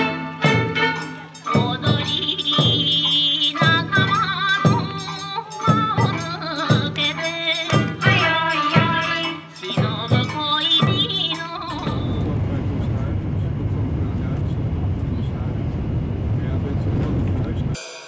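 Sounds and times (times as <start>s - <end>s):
drum beats: 0.0s - 14.5s
wavering vocal: 1.0s - 13.3s.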